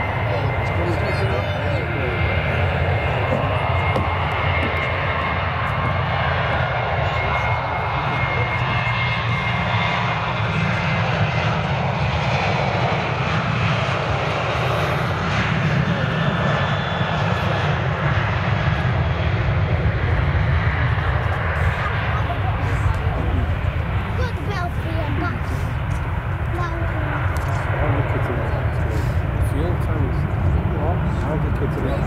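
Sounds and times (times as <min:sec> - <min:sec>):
jet engine roar: 0:00.0 - 0:32.0.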